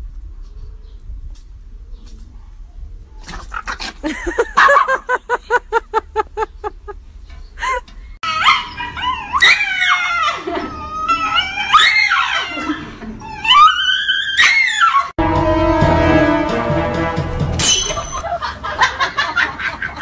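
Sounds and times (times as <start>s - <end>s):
dog yipping: 8.2s - 12.8s, 13.4s - 15.1s
dog screaming and whining: 8.2s - 15.2s.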